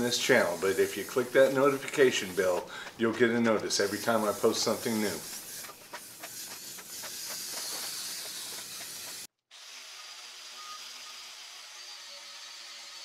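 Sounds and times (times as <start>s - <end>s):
aerosol can spraying hiss: 0.0s - 9.3s.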